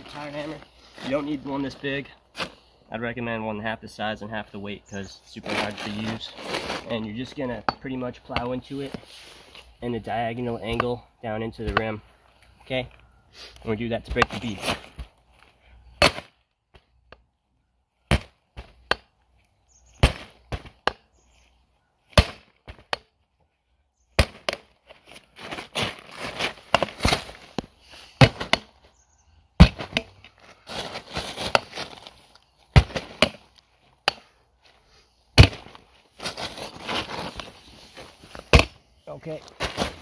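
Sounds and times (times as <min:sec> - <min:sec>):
rustling: 0:05.2 - 0:07.5, 0:24.3 - 0:29.0, 0:29.6 - 0:34.0, 0:34.6 - 0:40.0.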